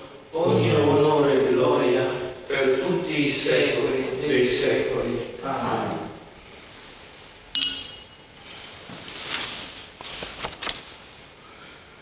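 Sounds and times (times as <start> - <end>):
metal chalice clinking: 7.6 - 8.4
book page turning: 9.0 - 11.2.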